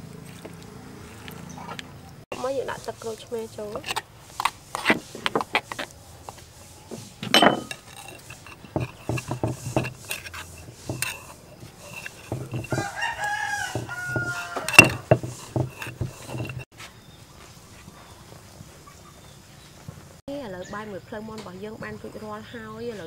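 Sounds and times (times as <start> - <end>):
metal spoon clinking: 7.2 - 16.6
stone pestle knocking in mortar: 7.2 - 16.7
rooster crowing: 12.6 - 15.1.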